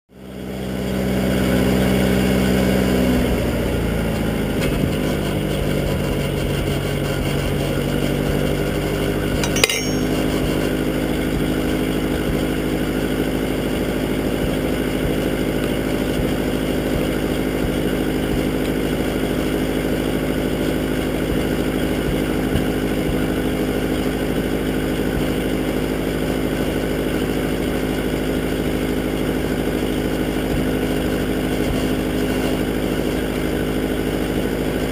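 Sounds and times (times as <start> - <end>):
tractor engine idling: 3.7 - 34.9
sharp metallic clank: 9.4 - 10.5.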